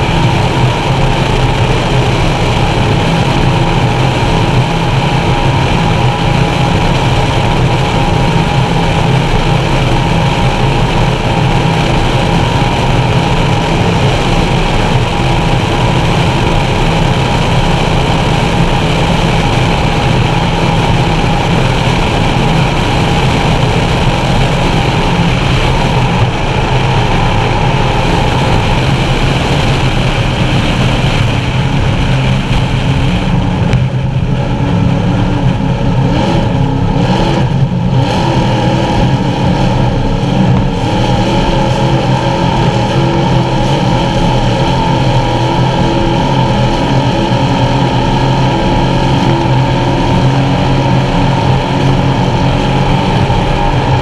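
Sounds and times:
boat engines droning: 0.0s - 54.0s.

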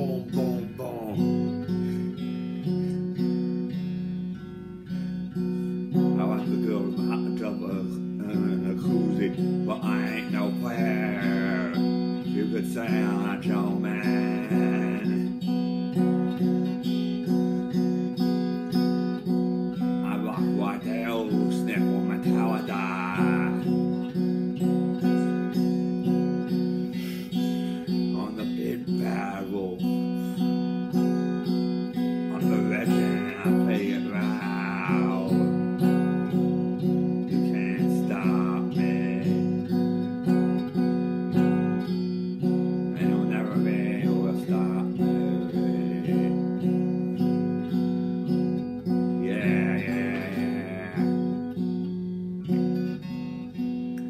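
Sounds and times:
vocal phrases: 0.0s - 2.1s, 5.8s - 17.3s, 19.8s - 26.2s, 26.8s - 30.6s, 32.0s - 47.7s, 48.9s - 51.8s
electric guitar strumming: 0.0s - 54.0s.

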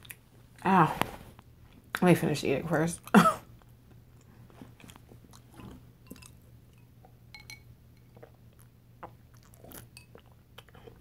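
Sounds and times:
person chewing food: 0.0s - 0.6s, 3.5s - 11.0s.

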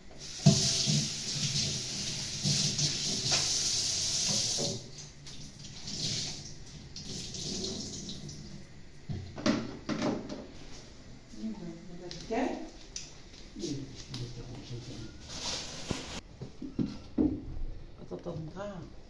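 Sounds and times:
tap running into metal sink: 0.4s - 3.6s, 4.2s - 4.9s.

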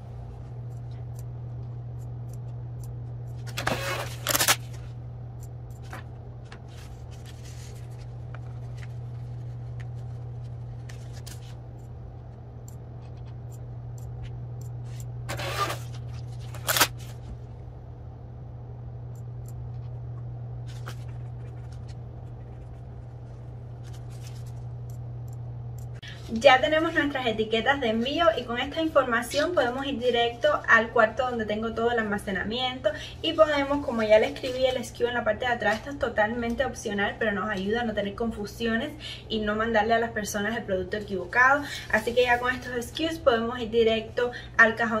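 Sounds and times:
steady low hum: 0.0s - 45.0s
paper rustling and scraping: 5.8s - 11.6s, 15.3s - 17.4s, 20.6s - 24.7s.

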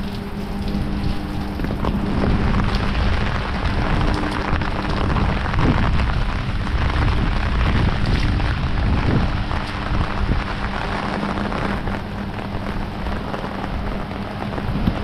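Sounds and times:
heavy rain falling: 0.0s - 15.0s
wind buffeting microphone: 0.0s - 15.0s.

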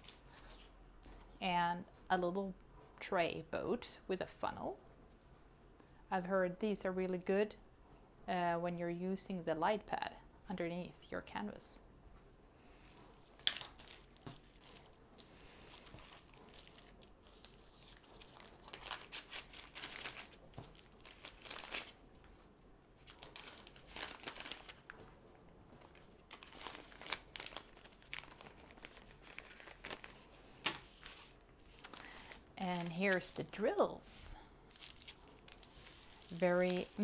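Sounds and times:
plastic bags crinkling: 13.0s - 22.3s, 23.0s - 25.1s, 25.8s - 33.7s, 34.6s - 37.0s.

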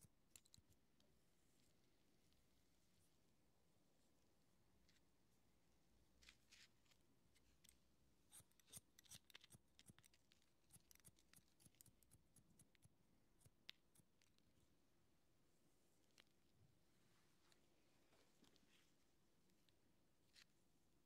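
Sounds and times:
scissors snipping hair: 8.3s - 12.8s.

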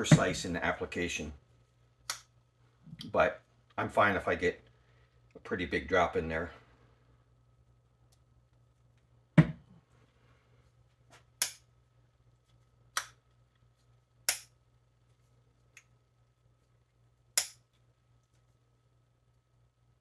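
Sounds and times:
dull knock: 9.4s - 9.6s.

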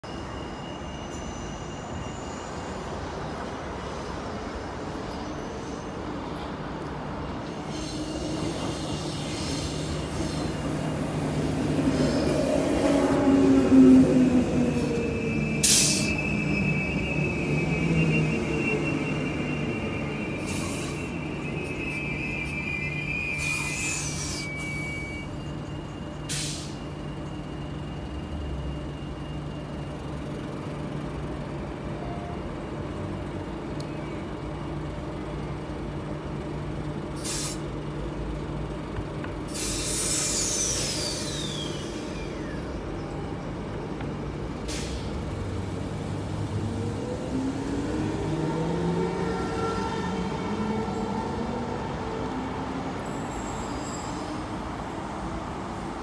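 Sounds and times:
air brake hisses: 7.6s - 10.6s, 15.6s - 16.6s, 20.4s - 21.2s, 23.2s - 25.3s, 26.3s - 26.9s, 37.2s - 37.7s, 39.5s - 42.4s, 44.6s - 45.2s
hiss with falling whistle: 14.7s - 27.0s, 39.5s - 42.7s.

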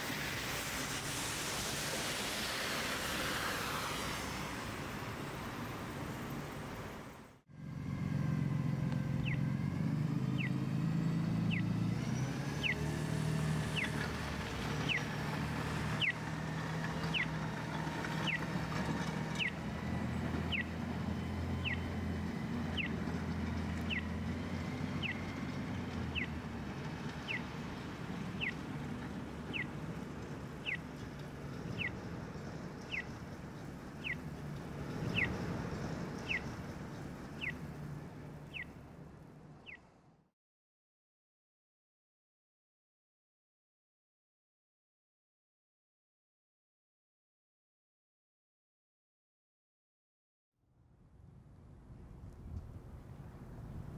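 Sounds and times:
low rumble of traffic: 0.0s - 40.3s, 50.6s - 53.9s
crossing signal chirping: 19.4s - 20.8s.

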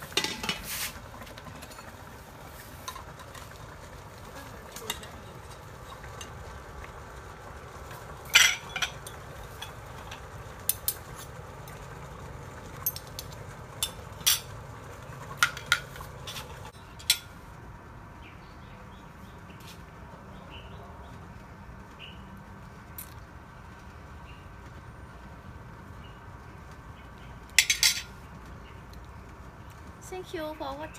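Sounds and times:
steady low background hum: 0.0s - 30.9s
utensils clinking against dishes: 8.3s - 10.2s, 27.6s - 28.1s.

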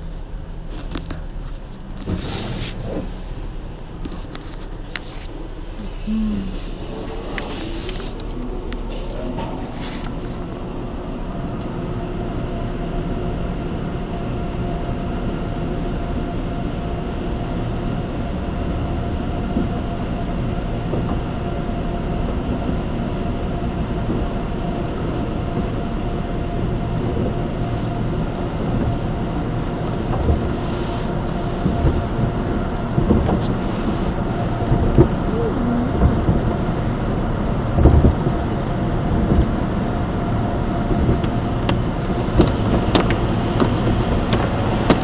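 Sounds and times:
water spraying on car: 0.0s - 11.2s, 26.4s - 34.6s, 39.6s - 45.0s
car wash machinery rumble: 0.0s - 45.0s.

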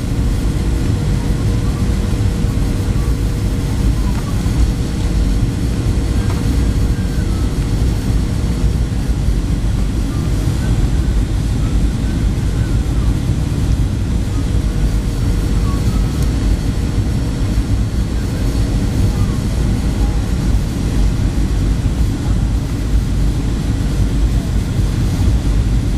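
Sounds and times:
faint steady hum tone: 0.0s - 25.9s
jet engine and airflow rumble: 0.0s - 25.9s.

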